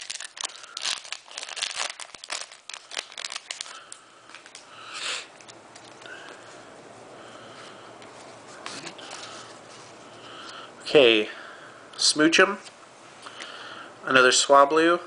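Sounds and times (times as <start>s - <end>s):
foil wrapper crinkling: 0.0s - 4.6s.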